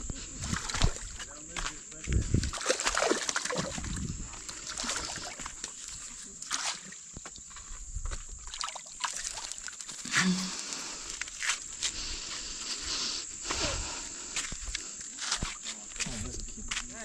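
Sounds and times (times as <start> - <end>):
water splashing at rocky bank: 2.4 - 7.2, 8.4 - 10.1.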